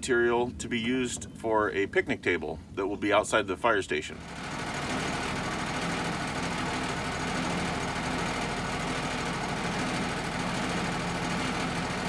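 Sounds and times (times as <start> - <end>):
sawmill engine running: 4.2 - 12.0.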